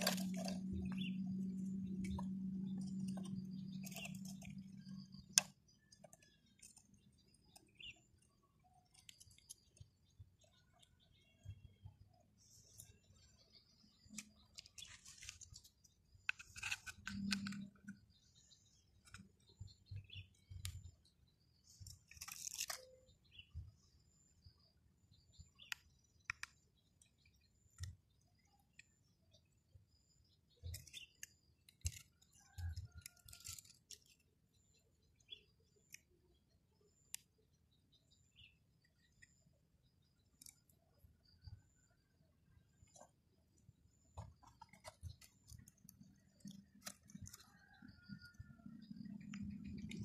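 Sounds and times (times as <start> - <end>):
scraping crunch: 0.0 - 1.2
faint bird chirps: 0.0 - 50.0
plastic toy parts clicking: 14.0 - 18.0, 21.8 - 23.1, 30.6 - 34.3, 44.2 - 47.5.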